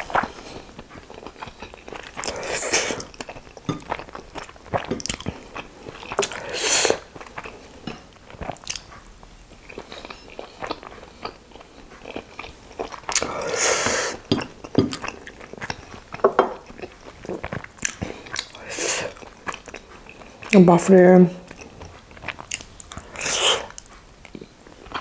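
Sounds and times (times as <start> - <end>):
person chewing with wet smacks: 0.0 - 20.7, 21.4 - 25.0
breathy mouth sounds: 21.4 - 25.0.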